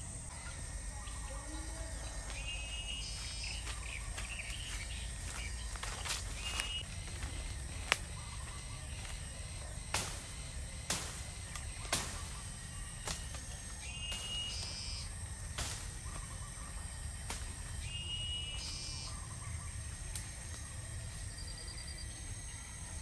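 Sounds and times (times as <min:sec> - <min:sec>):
birds chirping: 0:00.0 - 0:23.0
footsteps through undergrowth: 0:01.0 - 0:20.7
sharp twig cracks: 0:07.8 - 0:08.2, 0:09.9 - 0:16.4, 0:17.2 - 0:17.9.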